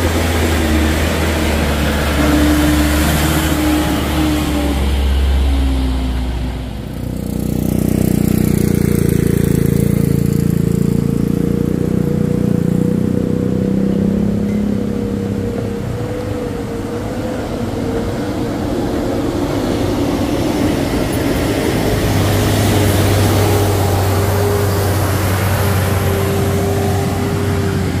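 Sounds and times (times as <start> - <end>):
road and tyre noise: 0.0 - 28.0
truck engine under load: 0.0 - 28.0
low steady drone: 12.0 - 28.0.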